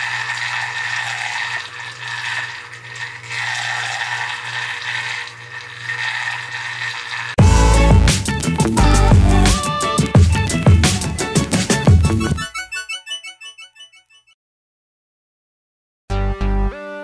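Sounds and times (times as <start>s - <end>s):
water swirling in a glass bowl: 0.0s - 7.4s
loud music: 7.4s - 12.8s.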